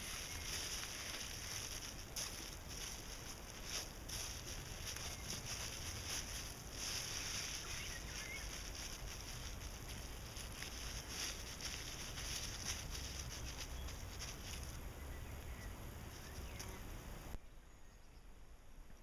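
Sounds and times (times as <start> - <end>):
plastic bag rustling: 0.0 - 14.8
soil crumbling: 0.0 - 14.8.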